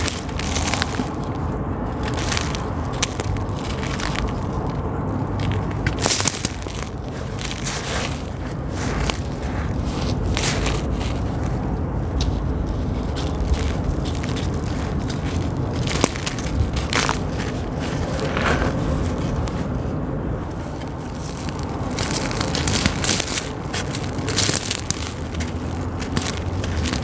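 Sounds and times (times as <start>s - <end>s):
sand-cement chunks crunching: 0.0s - 19.8s, 20.4s - 27.0s
steady low rumble: 0.0s - 27.0s
sand trickling onto floor: 20.8s - 27.0s.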